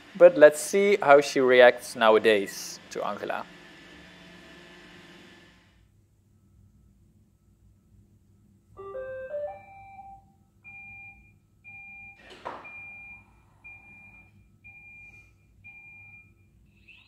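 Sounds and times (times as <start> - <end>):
electronic start-up chime: 8.8 - 10.3
steady beeps: 8.8 - 16.4.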